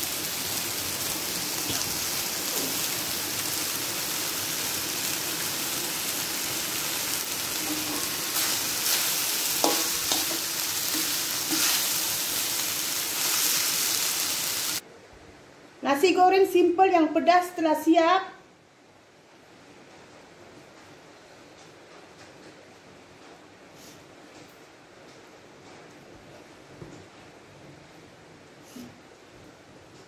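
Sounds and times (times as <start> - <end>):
rice sizzling in a wok: 0.0 - 14.8
spatula scraping and clinking pan: 7.6 - 11.9.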